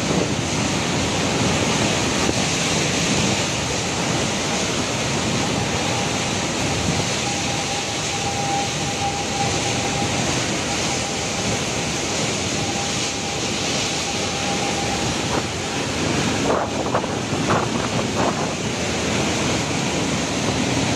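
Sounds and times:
wind and driving rain roaring: 0.0 - 20.9
wind buffeting microphone: 0.0 - 20.9
thin whistle: 7.1 - 11.6.

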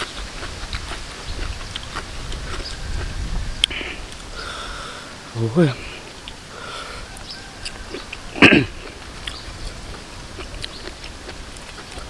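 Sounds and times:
crisp chewing: 0.0 - 4.7, 5.8 - 12.0
person coughing: 8.4 - 8.9.

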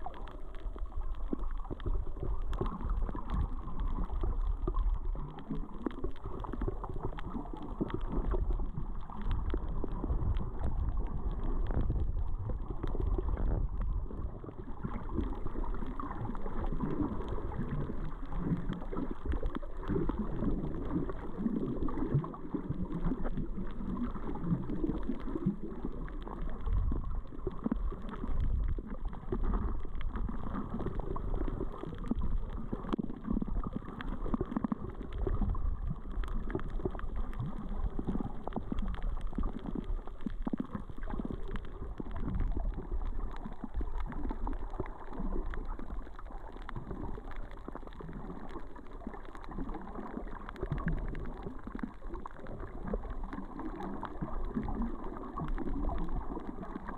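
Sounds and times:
faint clicks: 0.0 - 56.9
muffled underwater sloshing: 0.0 - 56.9.

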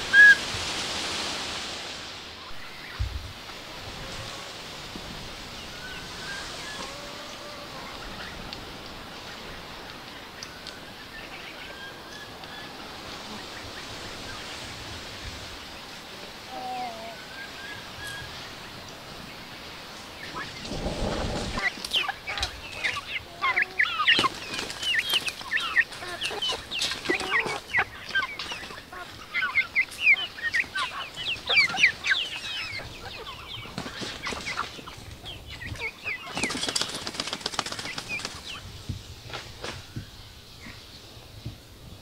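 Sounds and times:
birds chirping: 15.5 - 39.0.

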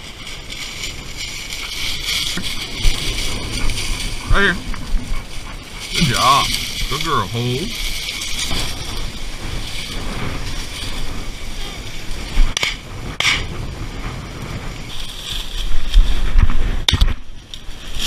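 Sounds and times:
dry grass brushing: 0.0 - 18.0
wind buffeting microphone: 0.0 - 18.0
sharp knocks: 12.6 - 13.5.

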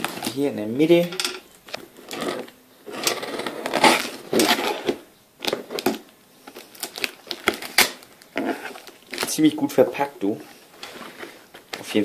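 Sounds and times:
knife cutting tape and cardboard: 3.0 - 5.0.

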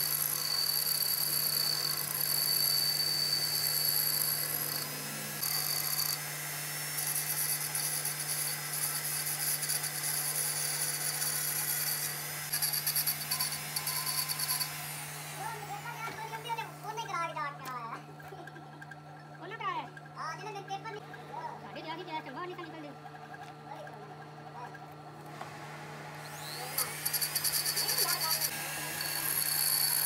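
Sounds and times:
die grinder whining: 0.0 - 30.0
lathe humming: 0.0 - 30.0.

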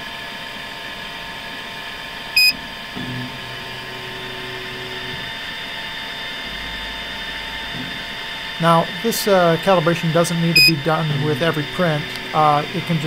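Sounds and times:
printer motors humming: 0.6 - 13.0
high electronic beep: 10.6 - 10.8.

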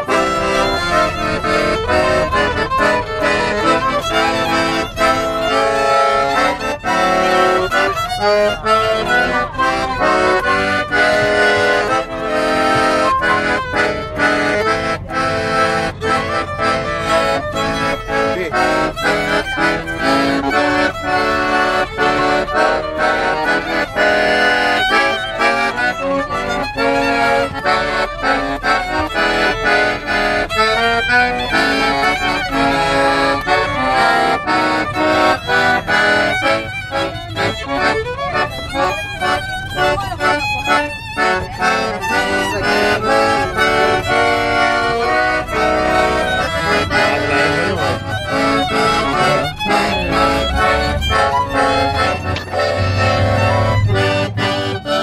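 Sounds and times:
accordion: 0.0 - 55.0
violin: 0.0 - 55.0.

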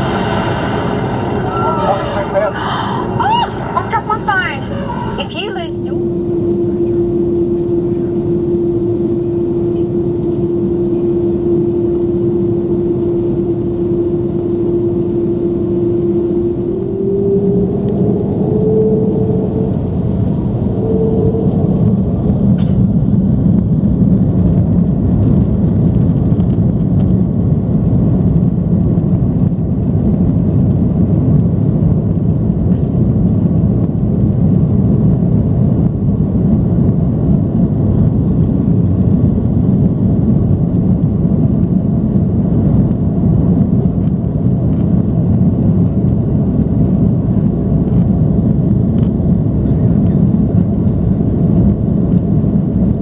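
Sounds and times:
aircraft cabin engine rumble: 0.0 - 53.0.

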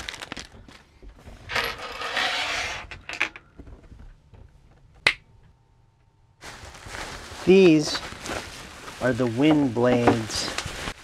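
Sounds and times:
metal bolts scraping on wood: 1.5 - 3.5.

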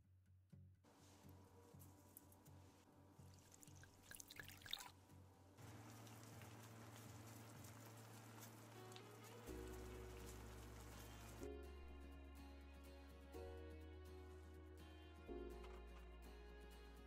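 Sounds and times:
water poured into a pan: 3.4 - 5.0, 5.6 - 11.2
crackling spatter: 5.6 - 11.4
faint simmering hiss: 5.6 - 11.4.

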